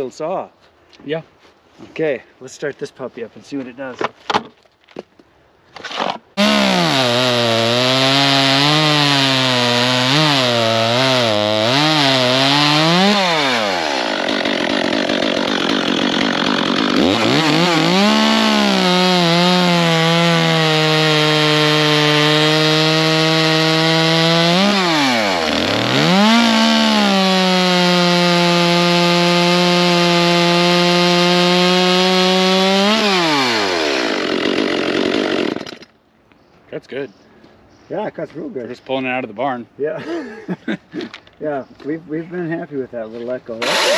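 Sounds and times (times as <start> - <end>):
chainsaw cutting log: 5.8 - 35.9, 43.6 - 43.9.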